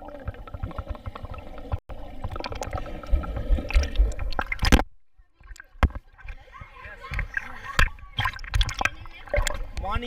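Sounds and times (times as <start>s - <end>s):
pool water sloshing: 5.4s - 10.0s.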